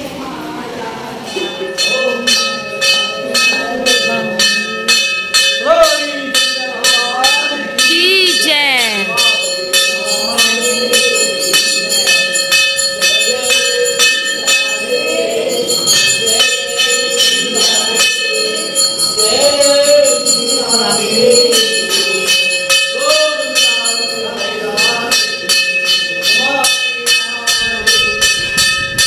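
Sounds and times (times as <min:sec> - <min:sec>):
brass bell ringing rapidly: 0:01.6 - 0:29.0
group of people singing: 0:07.3 - 0:28.2.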